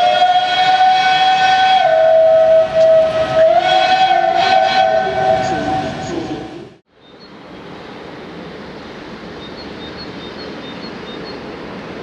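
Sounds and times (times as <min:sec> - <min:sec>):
steam locomotive whistle: 0:00.0 - 0:06.6.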